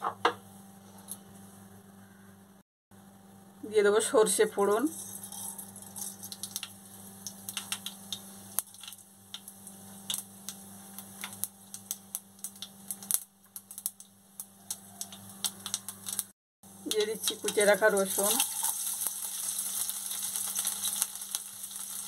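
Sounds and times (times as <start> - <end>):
mustard seeds popping in hot oil: 4.9 - 22.0.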